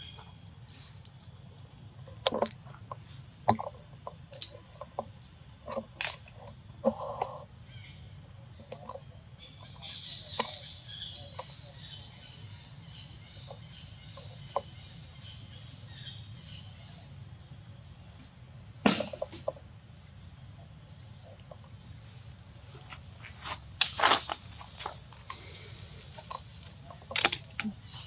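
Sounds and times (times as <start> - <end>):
birds chirping: 7.1 - 17.3.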